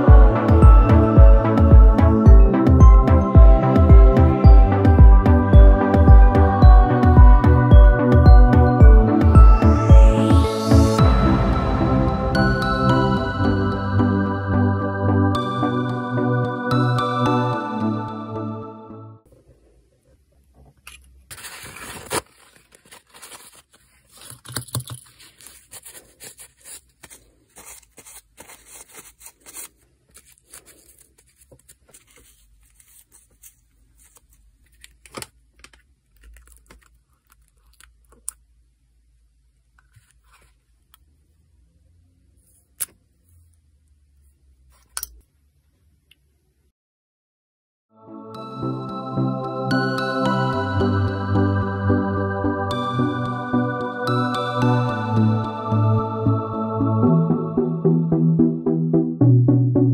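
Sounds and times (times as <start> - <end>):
rustling tear: 21.3 - 38.4.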